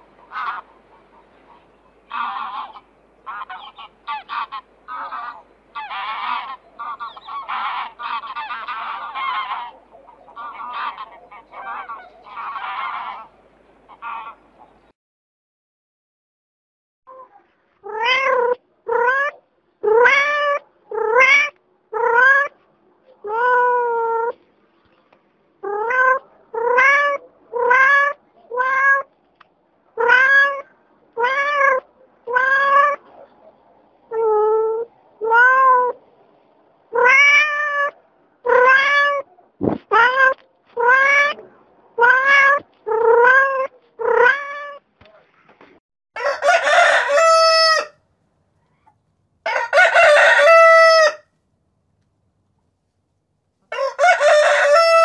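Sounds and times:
cat meowing: 17.8s - 22.5s, 25.6s - 29.1s, 30.0s - 33.0s, 34.1s - 36.0s, 36.9s - 39.3s, 39.9s - 44.8s.

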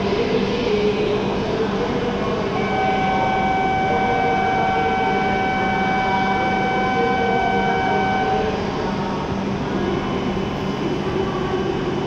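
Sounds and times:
train humming: 0.0s - 12.0s
electronic warning tone: 2.6s - 8.7s.

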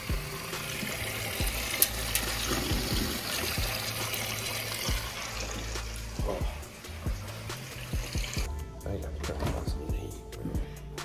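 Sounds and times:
background music bass line: 0.0s - 11.0s.

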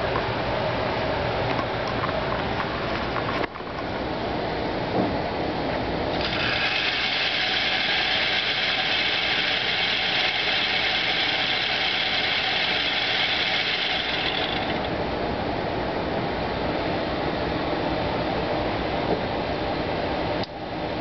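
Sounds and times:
electric motor whirring: 6.2s - 14.9s.

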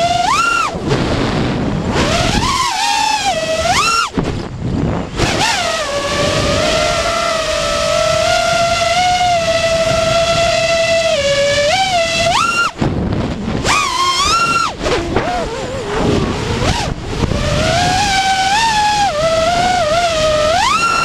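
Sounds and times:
quadcopter motors whining: 0.0s - 21.0s
rush of air: 0.5s - 8.7s.

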